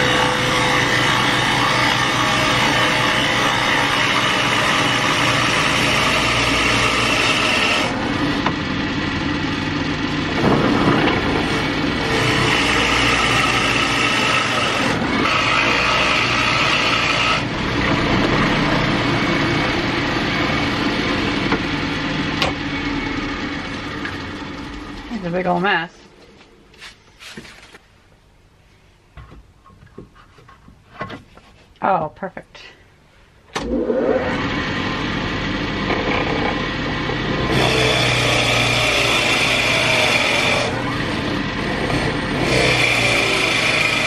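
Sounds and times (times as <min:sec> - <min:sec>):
drill press motor running: 0:00.0 - 0:25.1, 0:33.6 - 0:44.0
drill bit scraping into wood: 0:35.8 - 0:41.1, 0:41.7 - 0:44.0.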